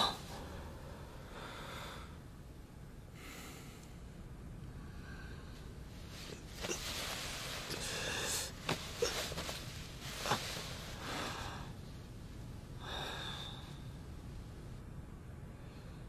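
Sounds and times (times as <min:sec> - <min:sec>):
man breathing sharply and gasping: 0:00.0 - 0:02.3, 0:03.1 - 0:04.1, 0:04.8 - 0:09.6, 0:12.8 - 0:14.1
clothing rustling: 0:05.9 - 0:11.6.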